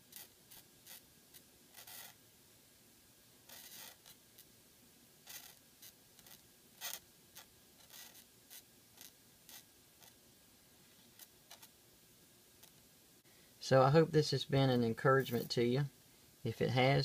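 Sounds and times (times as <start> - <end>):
pen nib scratching paper: 0.0 - 2.2, 3.5 - 4.5, 5.2 - 10.2, 11.1 - 11.7.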